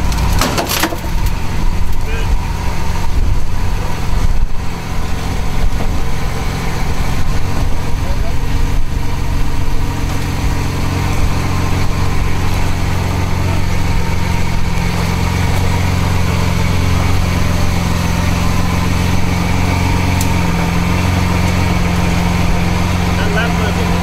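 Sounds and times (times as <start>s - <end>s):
car engine idling: 0.0s - 24.0s.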